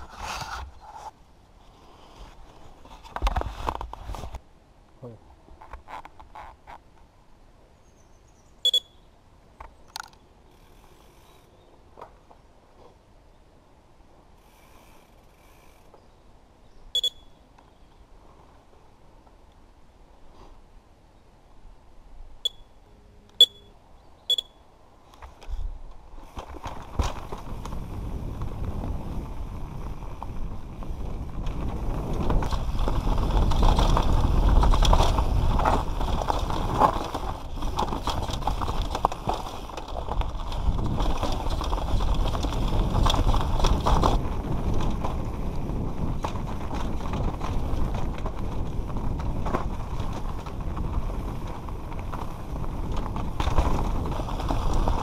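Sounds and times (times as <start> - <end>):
bike tyres on loose dirt: 0.0 - 4.4, 7.9 - 9.0, 9.6 - 21.0, 24.2 - 55.0
short high beeps: 8.6 - 9.0, 17.0 - 17.4, 22.4 - 22.8, 23.4 - 24.6
bike rattling over rough ground: 25.2 - 55.0
wind on camera: 25.2 - 55.0.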